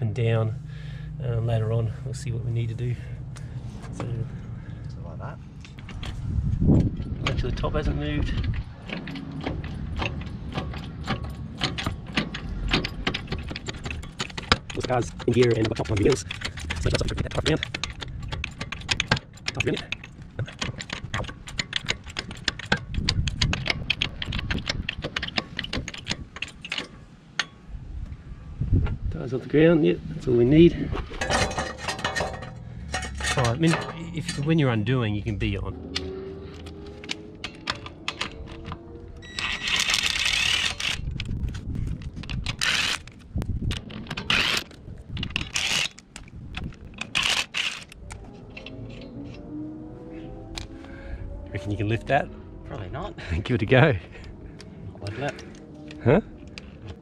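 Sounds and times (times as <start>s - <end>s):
bottle jack clicking and rattling: 8.4s - 27.6s.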